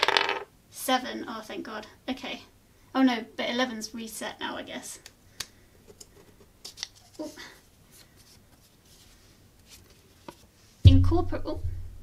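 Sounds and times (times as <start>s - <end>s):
paper rustling: 6.2s - 10.6s.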